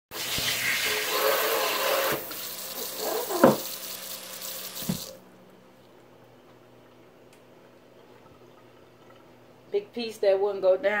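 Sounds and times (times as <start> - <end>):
faucet running: 0.1 - 5.2
sink sprayer hissing water: 0.1 - 5.2
knocks against sink: 3.4 - 3.7.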